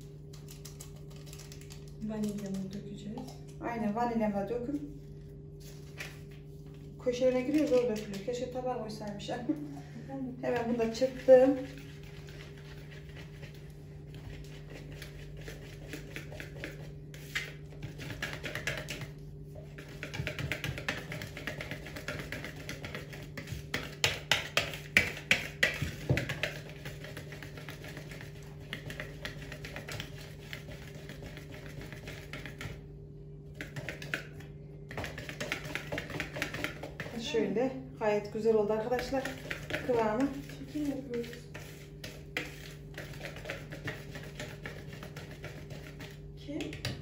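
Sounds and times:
whisk beating batter in a bowl: 10.3 - 37.7, 38.6 - 47.0.

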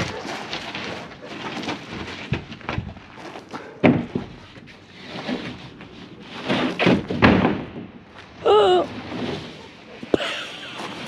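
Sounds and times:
wood scraping on wood: 0.0 - 7.4.

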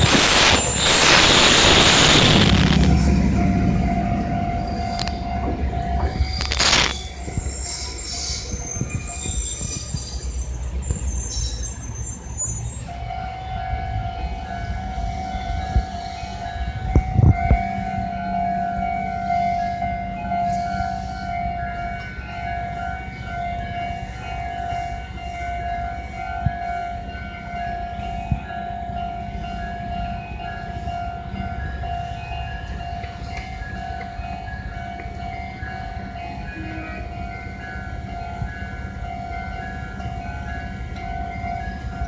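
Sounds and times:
low rumble: 0.0 - 7.7
level crossing alarm dinging: 0.0 - 8.1, 13.0 - 42.0.

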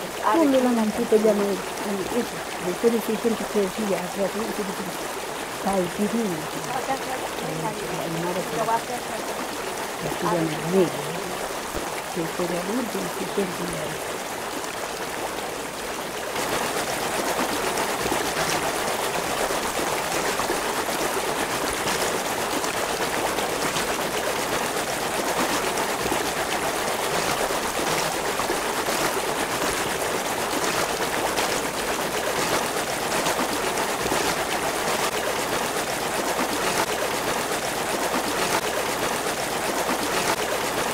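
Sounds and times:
stream water running: 0.0 - 40.9.

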